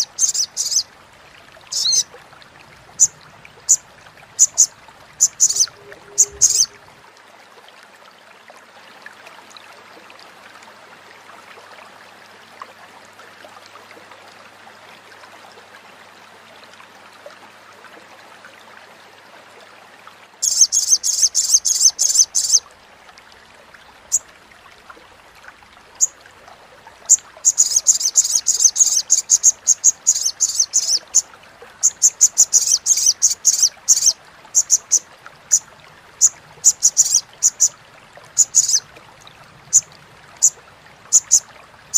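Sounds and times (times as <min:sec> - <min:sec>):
bird chattering high-pitched: 0:00.0 - 0:00.8, 0:01.7 - 0:02.0, 0:04.4 - 0:06.8, 0:20.4 - 0:22.6, 0:27.5 - 0:31.2, 0:31.8 - 0:35.6, 0:36.2 - 0:37.7, 0:38.4 - 0:38.8, 0:40.4 - 0:41.4
faint steady hiss: 0:00.0 - 0:41.9.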